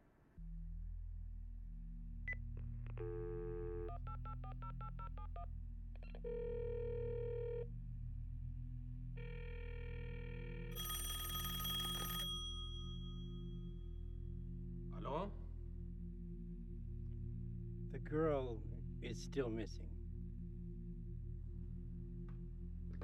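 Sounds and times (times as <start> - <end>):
low steady drone: 0.4 - 4.0, 5.4 - 10.8, 12.4 - 23.0
phone line ringing tones: 9.2 - 13.1
telephone bell ringing: 10.7 - 13.1
phone line click and tone: 10.8 - 12.6.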